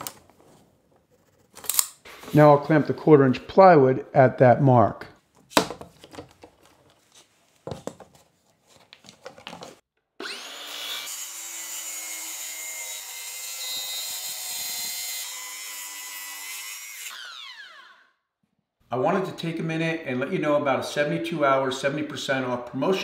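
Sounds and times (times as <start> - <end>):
circular saw cutting plywood: 10.2 - 18.0.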